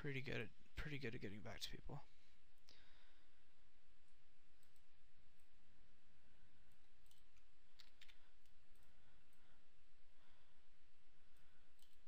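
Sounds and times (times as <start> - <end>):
low background noise: 0.0 - 12.0
mouse and keyboard clicks: 6.7 - 9.4, 11.3 - 12.0.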